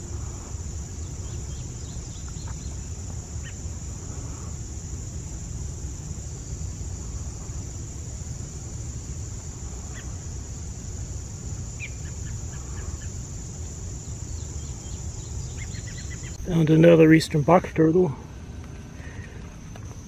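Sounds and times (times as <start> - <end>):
high insect drone: 0.0 - 20.0
faint bird chirps: 0.4 - 4.6, 11.8 - 13.2, 14.0 - 16.5.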